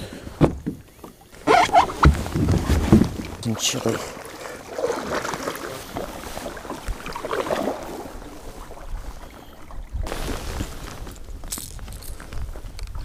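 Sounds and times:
paddle strokes splashing: 1.1s - 11.4s
wind rumbling on microphone: 1.4s - 3.5s, 6.1s - 13.0s.

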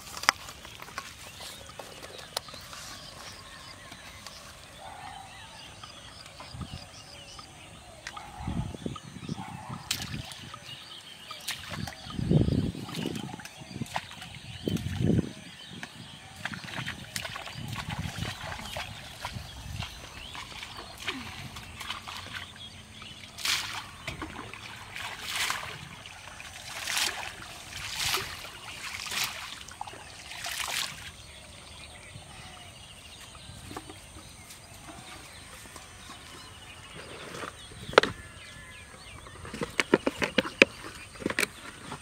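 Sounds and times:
water sloshing and splashing: 9.6s - 31.9s.

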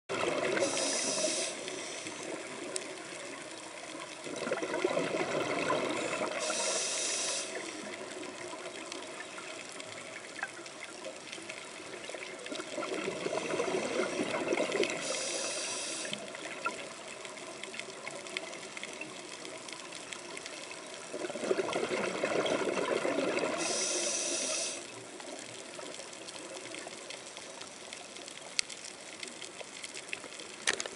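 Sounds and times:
exhaled bubbles underwater: 0.1s - 6.8s, 10.3s - 19.7s, 20.8s - 24.8s
regulator hissing: 0.6s - 2.3s, 6.3s - 7.8s, 15.0s - 16.4s, 23.6s - 24.9s.

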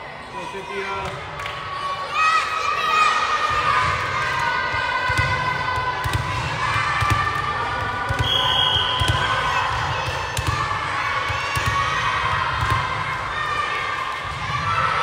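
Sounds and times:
volleyballs bouncing on gym floor: 3.5s - 15.0s
whistle blast: 8.2s - 9.4s.

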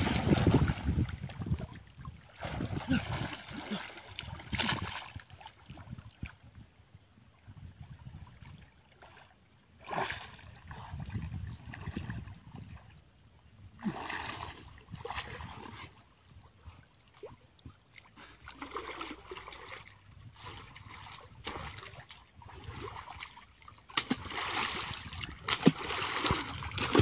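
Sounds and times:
water splashing: 0.0s - 5.8s, 18.0s - 27.0s.

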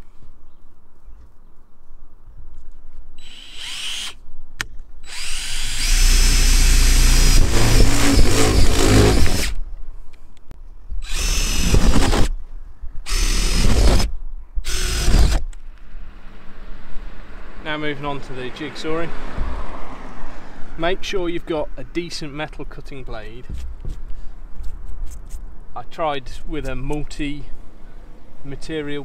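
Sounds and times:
cordless drill boring sheet metal: 3.2s - 4.2s, 5.1s - 9.6s, 11.0s - 12.3s, 13.1s - 15.4s.

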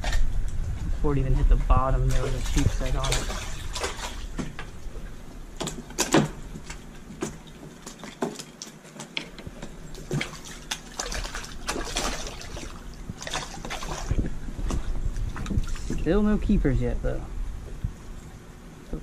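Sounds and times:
water splashing against kayak: 2.0s - 16.1s.

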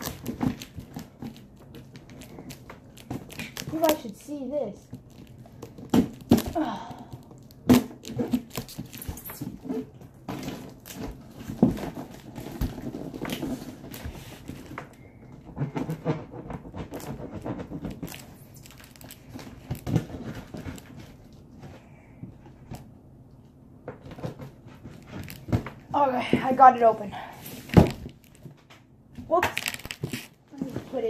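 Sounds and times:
cardboard scraping and crinkling: 7.4s - 21.9s, 24.0s - 28.6s, 29.3s - 31.0s.

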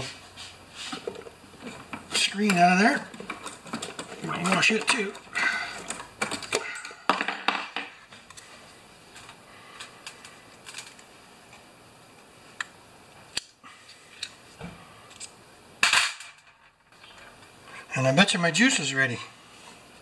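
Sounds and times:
rattle of parts: 0.9s - 8.4s, 9.1s - 11.1s.

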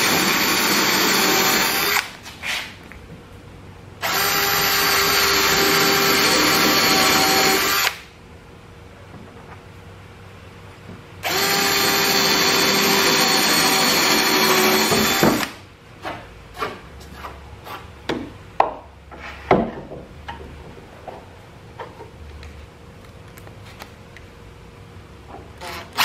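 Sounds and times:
drill boring into wood: 0.0s - 2.1s, 4.0s - 8.0s, 11.2s - 15.6s.

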